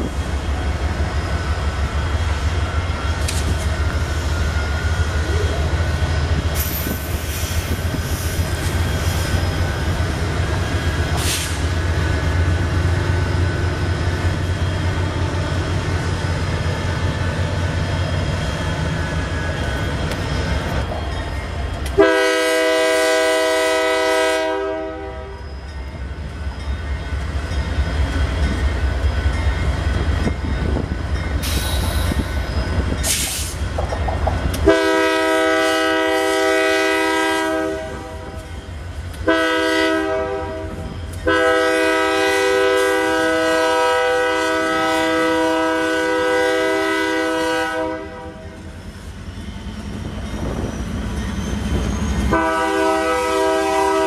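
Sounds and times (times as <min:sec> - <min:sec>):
freight train rumbling past: 0:00.0 - 0:54.0
locomotive air horn: 0:22.0 - 0:25.4, 0:34.6 - 0:38.4, 0:39.2 - 0:48.6, 0:52.3 - 0:54.0.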